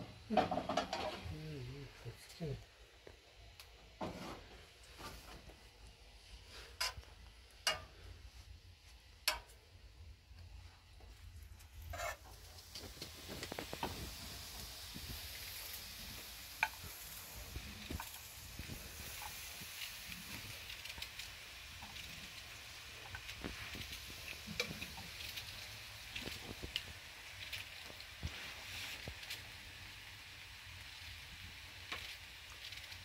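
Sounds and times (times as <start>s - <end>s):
potatoes sizzling in hot oil: 0.0s - 33.0s.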